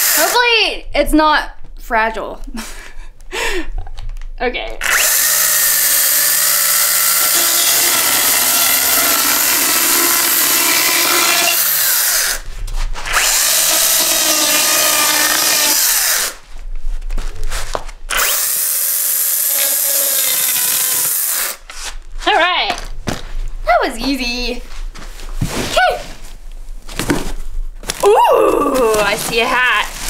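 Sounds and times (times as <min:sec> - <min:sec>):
chainsaw cutting cardboard: 0:04.8 - 0:12.4, 0:13.1 - 0:16.4, 0:18.1 - 0:21.6.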